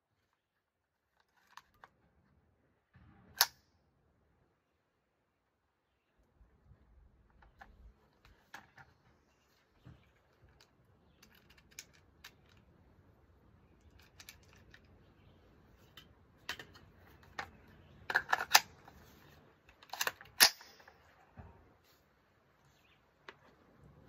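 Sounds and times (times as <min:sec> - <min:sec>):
rounds clicking into magazine: 0:03.4 - 0:03.6, 0:10.4 - 0:12.8, 0:13.8 - 0:15.0, 0:15.8 - 0:21.1
magazine clacks: 0:15.8 - 0:19.0, 0:19.7 - 0:21.0
rifle charging handle worked: 0:19.7 - 0:21.1.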